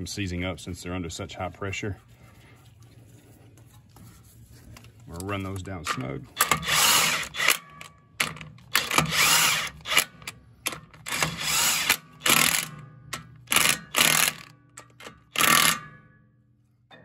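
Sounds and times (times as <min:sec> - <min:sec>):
cordless driver spinning bolts: 0:06.4 - 0:12.8, 0:13.4 - 0:15.8.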